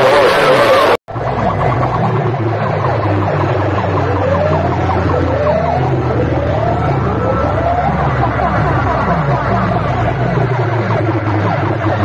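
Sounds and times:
electronic siren sweep: 0:00.0 - 0:12.0
steady low drone: 0:00.0 - 0:12.0.

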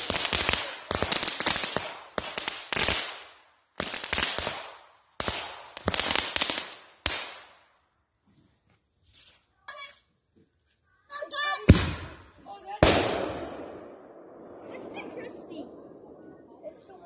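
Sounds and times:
fireworks popping and crackling: 0:00.0 - 0:07.7, 0:11.6 - 0:17.0.

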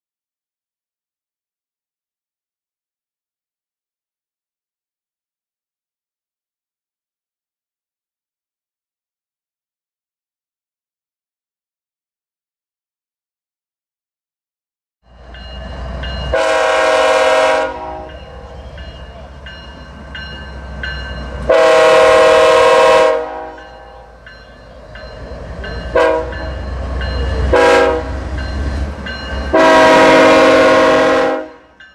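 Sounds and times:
locomotive air horn chord: 0:16.2 - 0:18.7, 0:21.4 - 0:24.2, 0:25.9 - 0:26.6, 0:27.3 - 0:28.4, 0:29.5 - 0:31.8.

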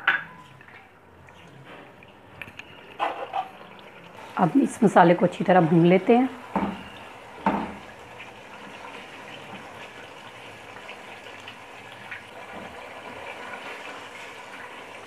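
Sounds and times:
spoon stirring in pot: 0:00.1 - 0:04.2
sauce bubbling and sizzling in oil: 0:00.4 - 0:15.0
spoon knocking pot: 0:06.5 - 0:07.8.

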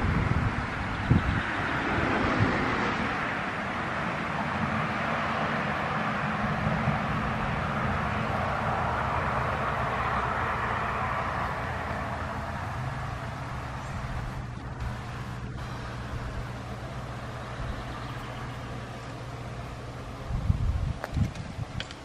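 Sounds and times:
low hum: 0:06.4 - 0:21.0
even hiss: 0:12.3 - 0:19.7.

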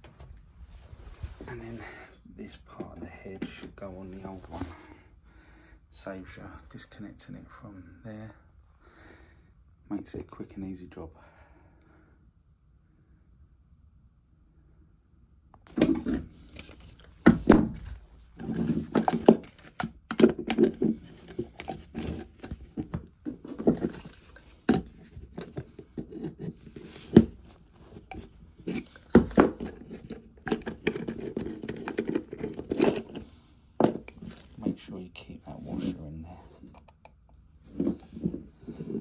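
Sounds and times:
pliers scraping on brass: 0:15.7 - 0:34.6.

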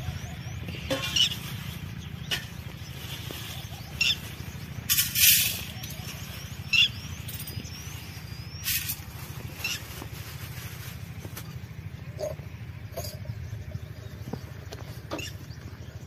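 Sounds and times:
birds chirping: 0:00.0 - 0:16.0
steady low hum: 0:00.0 - 0:16.0
plastic bag crinkling: 0:08.7 - 0:11.6.

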